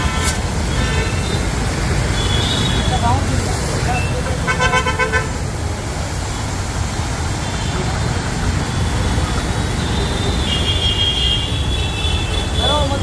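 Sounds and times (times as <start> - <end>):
street traffic: 0.0 - 13.0
water jet hissing: 0.0 - 13.0
vehicle horn: 4.5 - 5.3.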